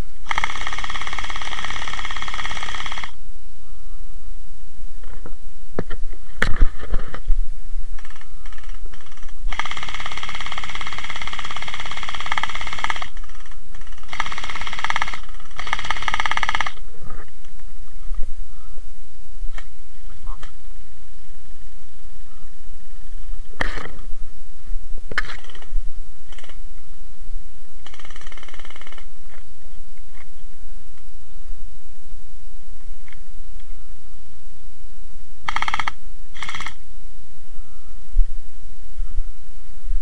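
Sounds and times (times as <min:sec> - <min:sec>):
gel blasters firing full auto: 0:00.2 - 0:03.2, 0:08.0 - 0:16.8, 0:25.2 - 0:25.7, 0:27.8 - 0:29.1, 0:35.5 - 0:36.8.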